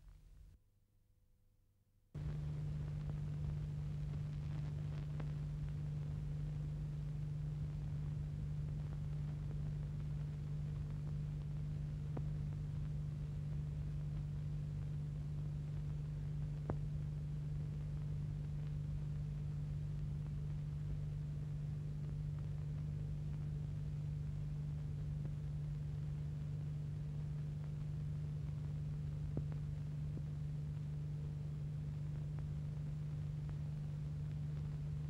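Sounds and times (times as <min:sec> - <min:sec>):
electrical hum with hiss: 0:02.2 - 0:35.0.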